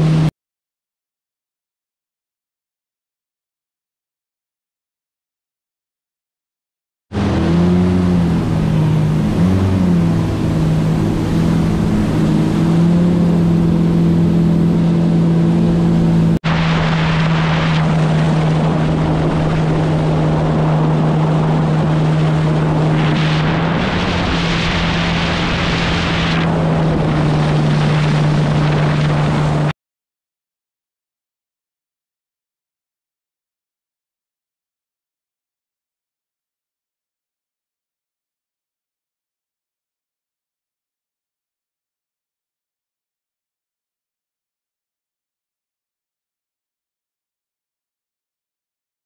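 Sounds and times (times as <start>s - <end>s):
outboard motor running: 0.0s - 0.3s, 7.1s - 29.7s
water rushing past: 7.2s - 29.7s
wind rushing: 15.8s - 29.7s.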